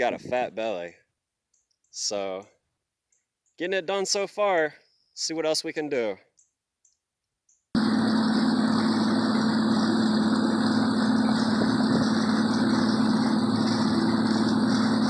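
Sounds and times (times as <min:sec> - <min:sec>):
outboard motor running: 0:07.8 - 0:15.0.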